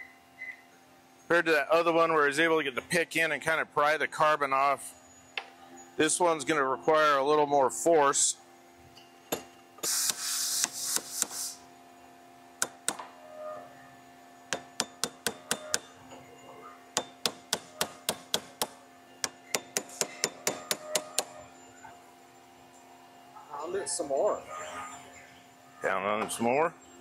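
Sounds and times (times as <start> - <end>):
hammer striking steel chisel: 9.3 - 11.4, 12.6 - 13.0, 14.5 - 16.0, 17.0 - 21.4.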